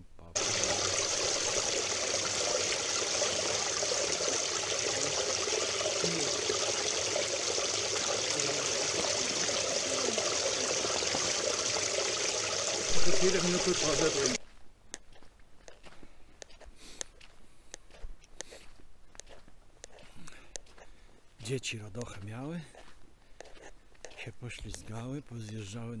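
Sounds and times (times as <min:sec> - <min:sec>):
stream running over boulders: 0:00.4 - 0:14.4.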